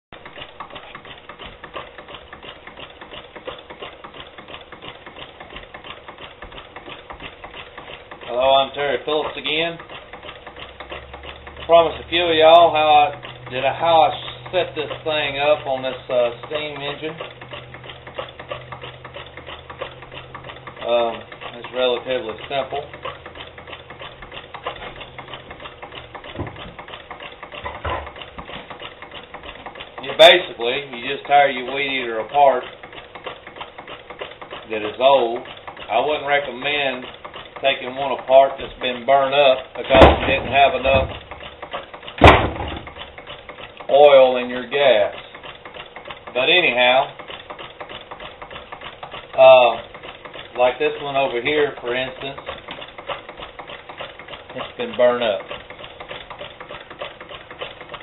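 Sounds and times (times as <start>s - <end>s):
small machine ticking: 0.1s - 58.0s
dull knocks: 26.2s - 26.8s, 27.6s - 28.6s, 39.9s - 41.2s, 42.2s - 43.0s.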